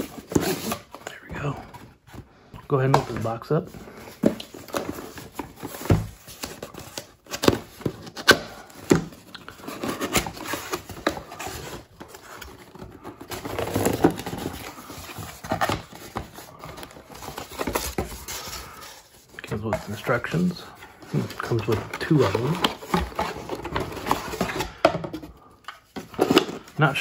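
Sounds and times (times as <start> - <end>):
paper rustling: 1.6 - 27.0
cardboard box being opened: 4.0 - 26.8.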